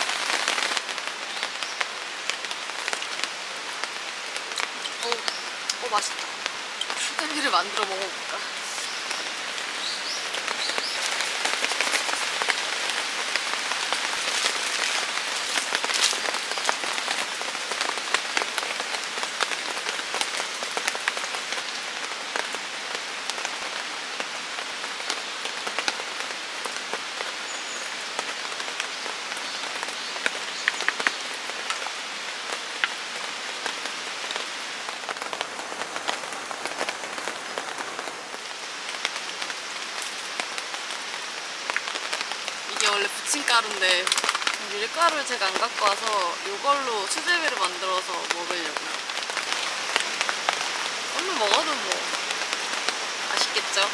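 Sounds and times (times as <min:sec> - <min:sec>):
sharp raindrops hitting close: 0:00.0 - 0:53.9
steady rain: 0:00.0 - 0:53.9.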